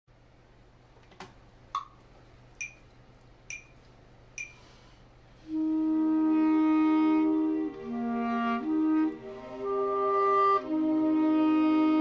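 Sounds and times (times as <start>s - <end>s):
metronome beeps: 2.6s - 2.9s, 3.5s - 3.8s, 4.4s - 4.6s
clarinet long low note: 5.5s - 12.0s.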